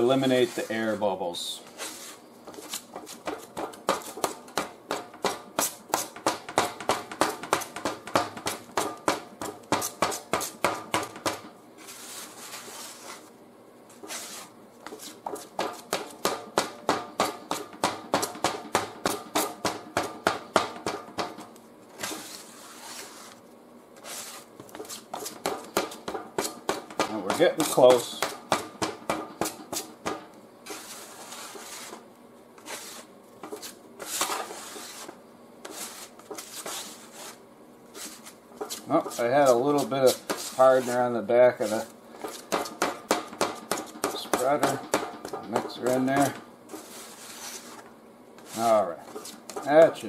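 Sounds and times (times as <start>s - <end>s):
spreader scraping body filler: 0.0s - 4.4s, 11.8s - 13.3s, 13.9s - 16.2s, 21.9s - 28.3s, 30.6s - 32.0s, 32.6s - 42.8s, 43.6s - 50.0s.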